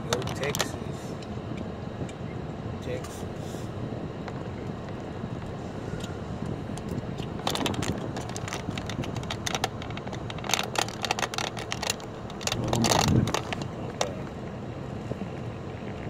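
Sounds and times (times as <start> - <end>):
irregular clicks and crackles: 0.0 - 2.2, 4.3 - 14.4
car cabin low hum: 0.0 - 16.0
car rumble: 0.0 - 16.0.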